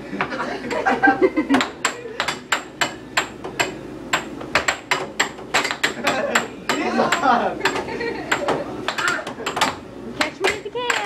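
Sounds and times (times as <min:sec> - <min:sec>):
air hockey puck and mallets clacking: 0:01.5 - 0:11.0.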